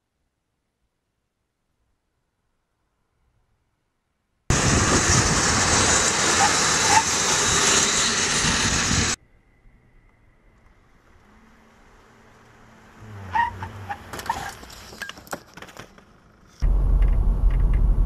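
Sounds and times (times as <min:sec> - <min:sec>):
car passing with road noise: 0:04.5 - 0:14.9
faint high whine: 0:08.3 - 0:12.3.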